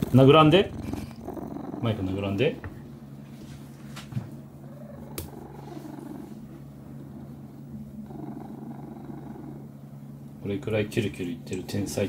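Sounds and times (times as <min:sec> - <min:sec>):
cat purring loudly: 0:00.0 - 0:03.0, 0:04.5 - 0:09.9.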